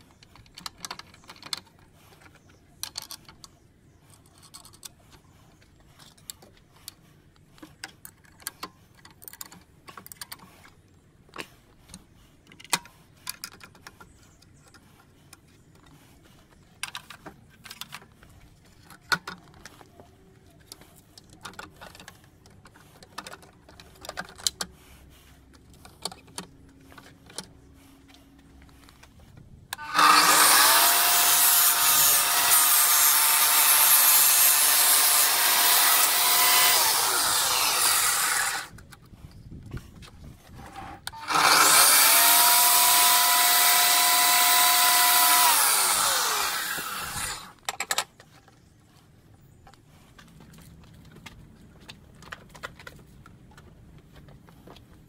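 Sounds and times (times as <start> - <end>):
parts clicking and rattling: 0.0 - 48.7
tile saw motor whining: 29.8 - 38.8, 41.1 - 47.6.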